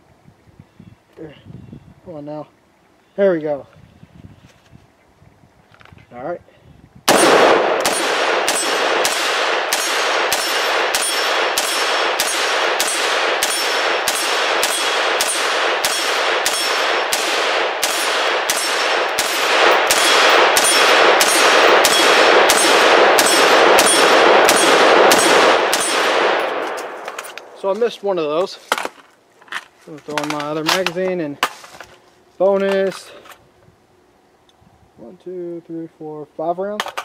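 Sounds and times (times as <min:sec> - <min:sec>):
rifle gunshots: 0:07.1 - 0:27.7
steel target clanging: 0:07.1 - 0:27.7.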